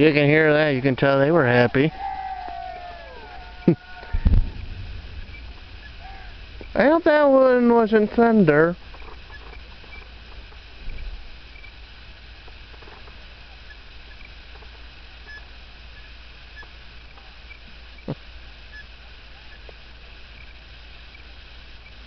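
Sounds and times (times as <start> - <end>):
steady hiss and low hum: 0.0 - 22.0
distant firework boom: 3.2 - 11.8
firework pop: 4.0 - 6.8.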